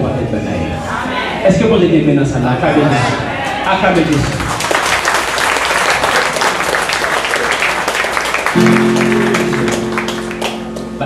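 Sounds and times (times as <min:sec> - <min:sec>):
crowd clapping: 0:04.0 - 0:11.0
held musical chord: 0:08.6 - 0:11.0.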